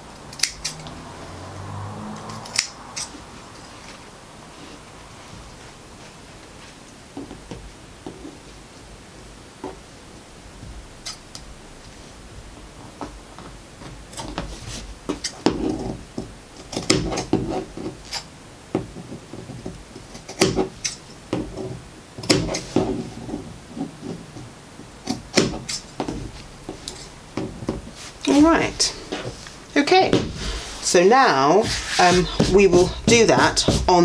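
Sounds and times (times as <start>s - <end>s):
scissors snipping fabric: 0.3s - 0.9s
cloth rustling: 3.2s - 8.6s, 25.6s - 34.0s.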